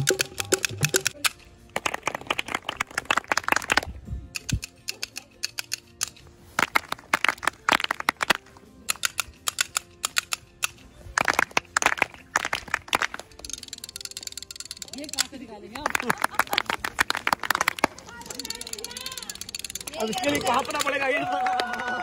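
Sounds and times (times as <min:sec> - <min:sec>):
group clapping in rhythm: 0:00.0 - 0:03.9, 0:06.6 - 0:08.4, 0:11.2 - 0:13.3, 0:15.8 - 0:18.1, 0:20.6 - 0:22.0.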